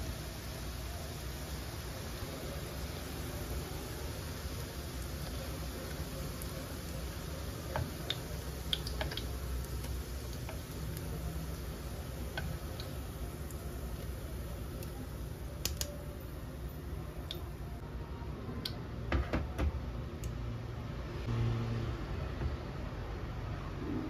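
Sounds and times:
food frying in hot oil: 0.0s - 17.6s.

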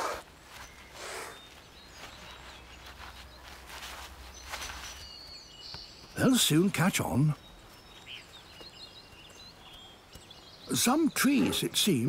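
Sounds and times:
scuffs and rustles in undergrowth: 0.0s - 6.2s
faint birdsong: 0.0s - 12.0s.

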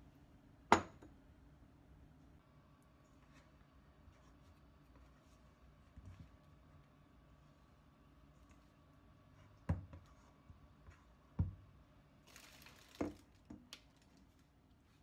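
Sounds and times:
flour brushing rustle: 3.0s - 11.2s.

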